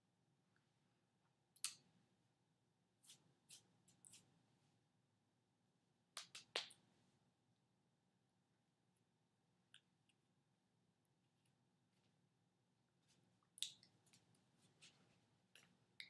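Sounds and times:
soft clicks and taps of hands: 0:06.2 - 0:06.8.

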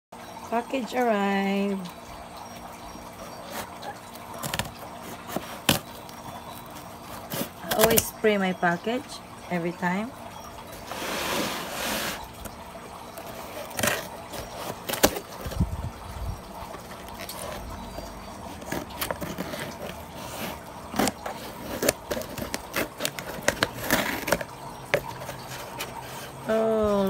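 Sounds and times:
cardboard package being handled: 0:03.4 - 0:08.1, 0:10.7 - 0:16.0, 0:16.6 - 0:26.4.

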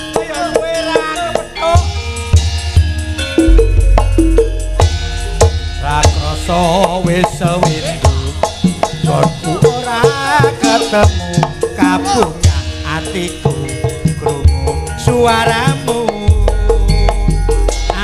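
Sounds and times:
ringing metallophones: 0:00.0 - 0:18.0
deep gong tone: 0:03.4 - 0:06.8.

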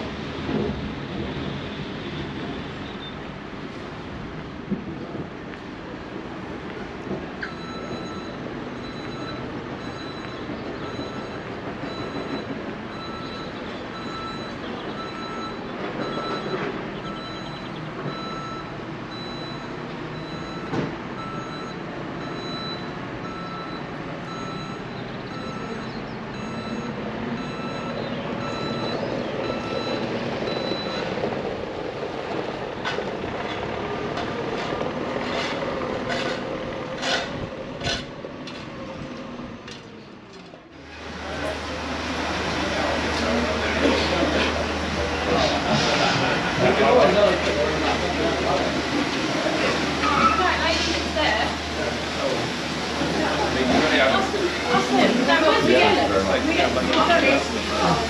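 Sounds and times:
electronic warning beeper: 0:07.4 - 0:31.1.

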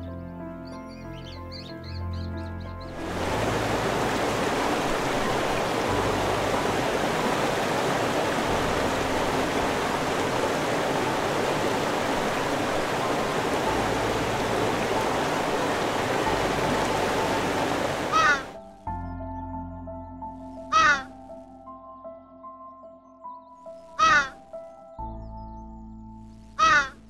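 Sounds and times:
stream rushing over rocks: 0:03.0 - 0:18.6.

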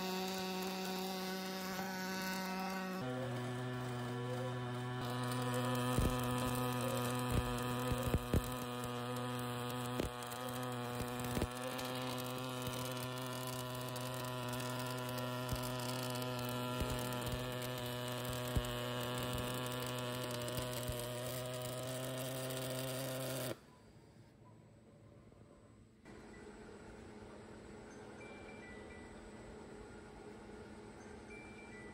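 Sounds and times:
welding arc buzzing: 0:00.0 - 0:23.7.

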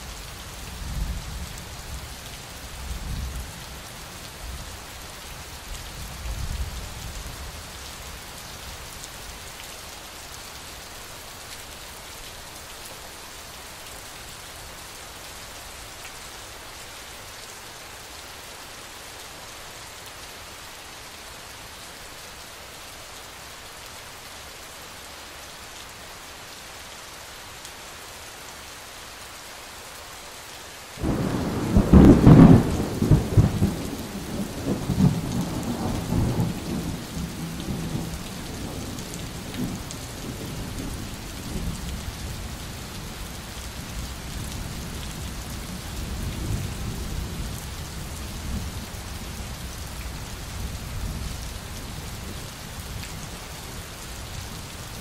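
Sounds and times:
rain hissing: 0:30.7 - 0:45.4
thunder rumbling: 0:31.0 - 0:38.1.

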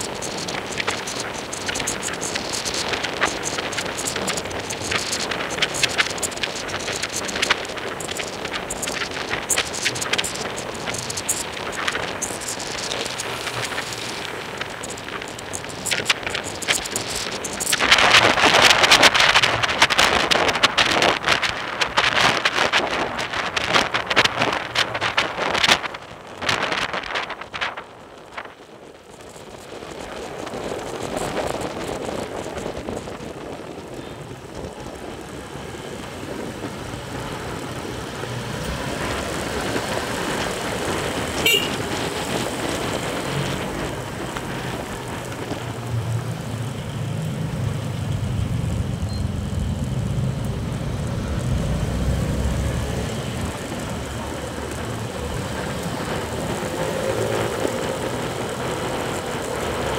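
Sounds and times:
road traffic noise: 0:00.0 - 0:59.9
low engine rumble: 0:30.5 - 0:59.9.

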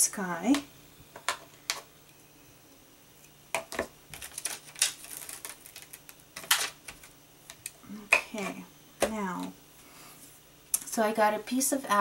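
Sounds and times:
plastic crinkling: 0:03.6 - 0:07.8.

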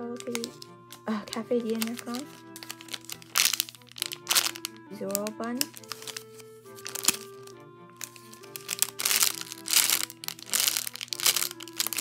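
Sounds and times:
plastic packaging crinkling: 0:00.0 - 0:12.0
soft background music: 0:00.0 - 0:12.0.

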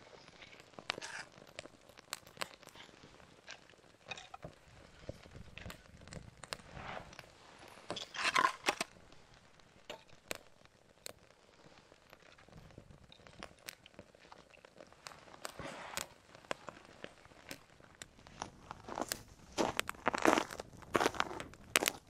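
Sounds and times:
rustling crunch: 0:00.0 - 0:10.6, 0:12.2 - 0:22.0
fire crackling and snapping: 0:00.0 - 0:22.0.

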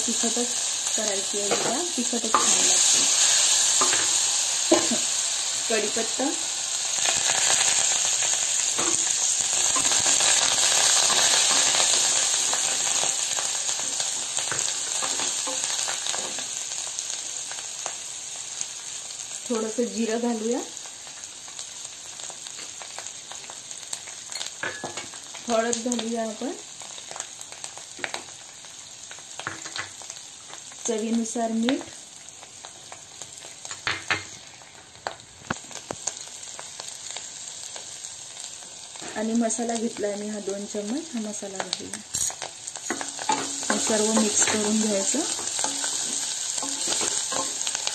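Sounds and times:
leaves sizzling in hot oil: 0:00.0 - 0:47.9
sharp pops and crackles: 0:33.7 - 0:36.2.

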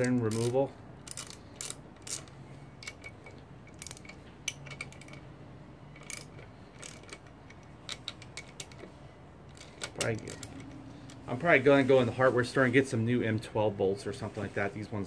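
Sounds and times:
socket ratchet clicking: 0:00.0 - 0:05.3, 0:05.9 - 0:11.2.

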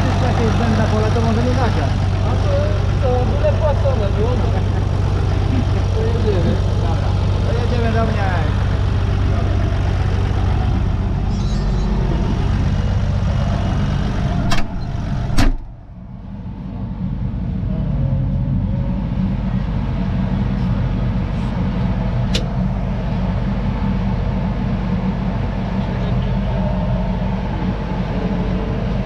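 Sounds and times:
tractor engine running: 0:00.0 - 0:29.0
cab door slamming: 0:14.4 - 0:15.7.

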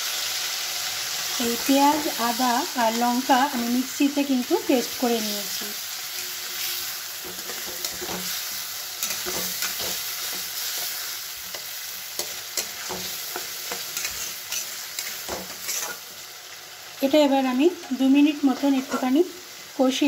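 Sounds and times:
food sizzling in oil: 0:00.0 - 0:20.0
metal spatula scraping pan: 0:05.5 - 0:16.2, 0:18.4 - 0:19.2.

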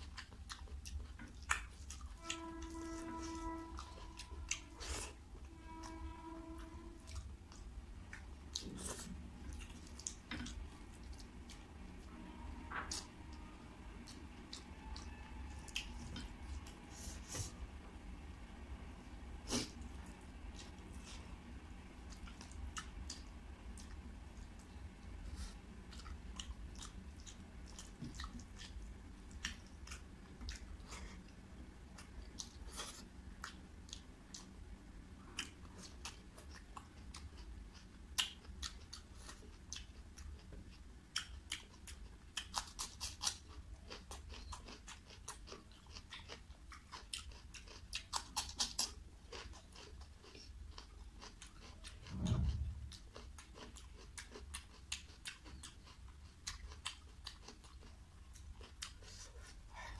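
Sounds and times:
close-up chewing: 0:00.0 - 0:06.0, 0:07.0 - 0:11.8, 0:22.0 - 0:59.9
low thump: 0:52.1 - 0:53.0.

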